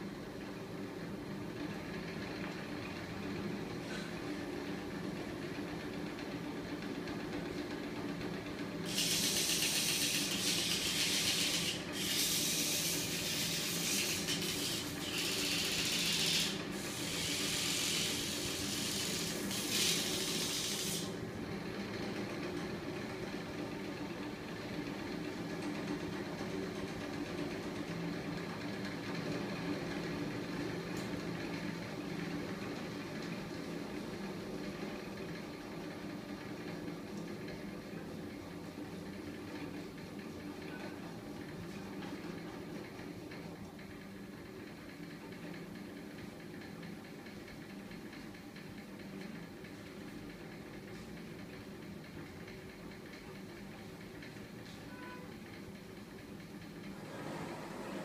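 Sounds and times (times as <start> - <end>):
motor and flywheel humming: 0.3 - 26.2.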